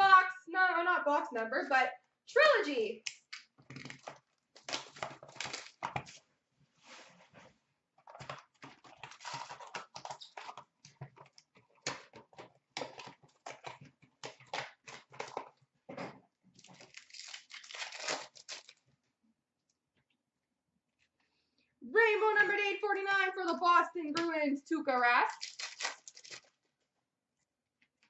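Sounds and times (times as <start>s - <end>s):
wrappers crinkling and tearing: 3.7s - 6.2s, 8.2s - 10.7s, 16.5s - 18.9s, 25.3s - 26.6s.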